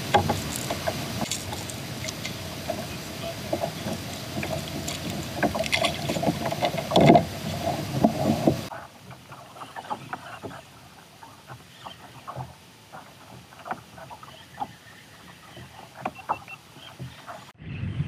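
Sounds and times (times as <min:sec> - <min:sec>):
knocks and handling noises: 0:00.0 - 0:08.7.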